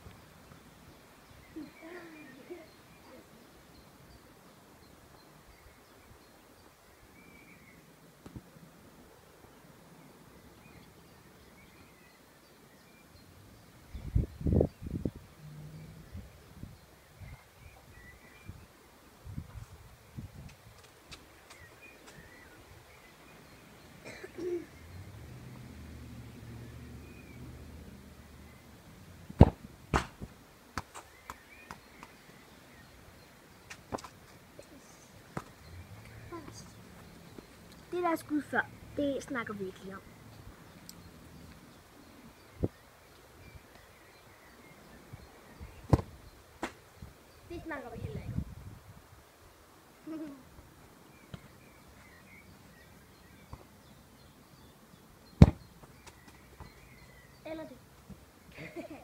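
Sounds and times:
football kicked on grass: 29.4 - 32.1, 45.9 - 46.8, 55.4 - 55.8.

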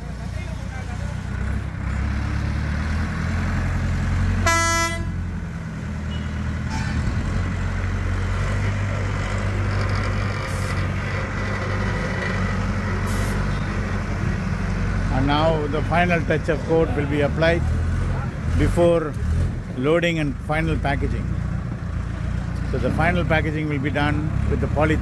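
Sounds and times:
diesel crane engine running: 0.0 - 25.0
short horn toot: 4.4 - 5.2.

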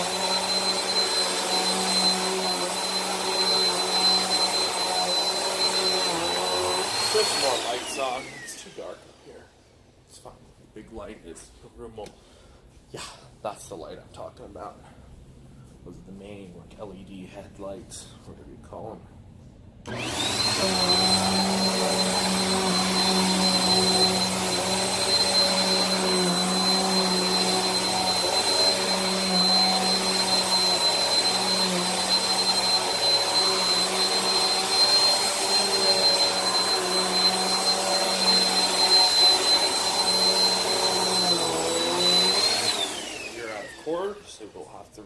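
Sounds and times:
upright vacuum running on carpet: 0.0 - 9.2, 19.9 - 44.2.

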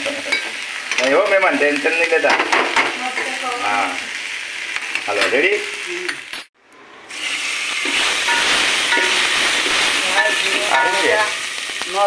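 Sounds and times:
hot oil sizzling: 0.0 - 12.0
spoon clinking against pot: 8.3 - 9.3, 10.2 - 11.2.

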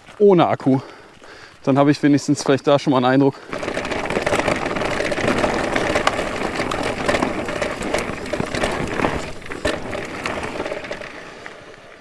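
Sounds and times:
bike tyres crunching on trail: 0.0 - 12.0
bike clicks and knocks: 3.5 - 12.0.

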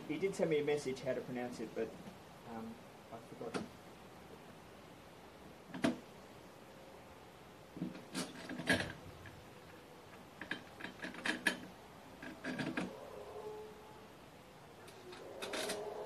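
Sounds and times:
lawn mower parts clicking and rattling: 7.8 - 12.9, 14.9 - 15.9.

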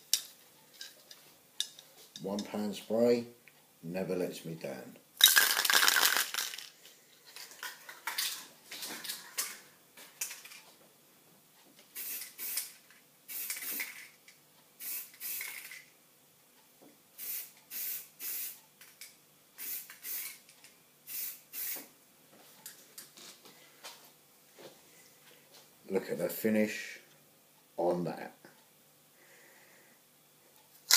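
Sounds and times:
spray can being shaken: 5.2 - 6.7, 12.0 - 14.1, 14.8 - 15.8, 19.6 - 20.4
spray paint can hissing: 12.0 - 12.7, 13.3 - 14.0, 14.8 - 15.8, 17.2 - 18.6, 19.6 - 20.4, 21.1 - 21.8.

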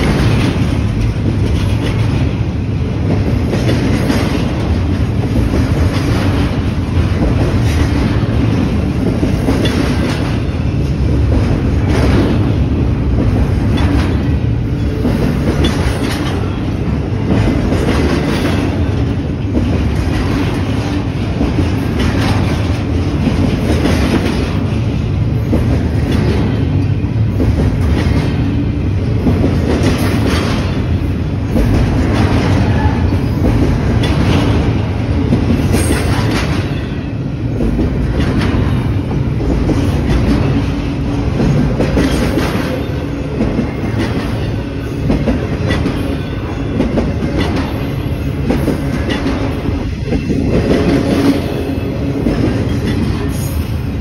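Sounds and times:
wheels clacking over rail joints: 0.0 - 53.8
train wheels rumbling on rails: 0.0 - 54.0.

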